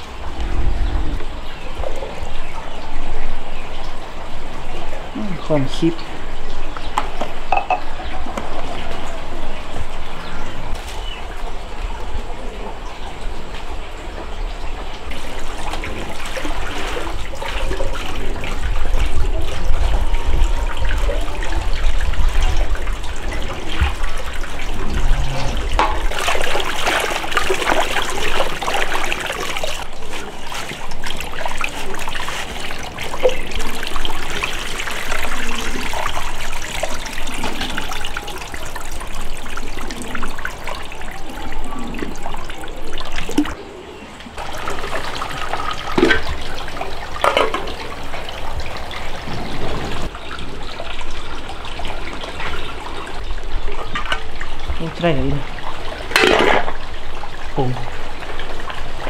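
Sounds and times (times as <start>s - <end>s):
water running and splashing: 0.0s - 43.6s, 44.4s - 59.0s
low rumble: 23.8s - 26.7s.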